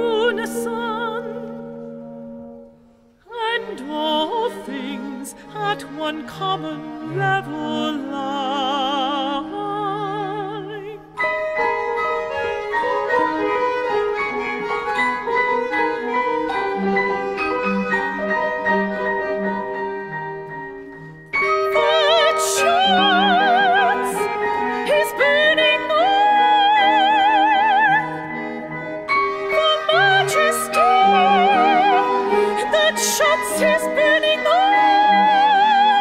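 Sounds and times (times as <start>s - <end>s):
soprano singing with vibrato: 0.0s - 1.8s, 3.3s - 13.5s, 21.4s - 36.0s
chamber ensemble pulsing notes: 11.2s - 36.0s.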